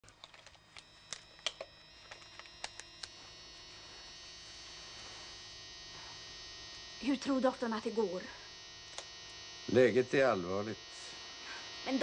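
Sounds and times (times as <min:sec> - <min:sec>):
electrical hum: 0:00.0 - 0:12.0
high many-toned whine: 0:00.0 - 0:12.0
sharp clicks: 0:00.2 - 0:03.2, 0:08.9 - 0:09.1.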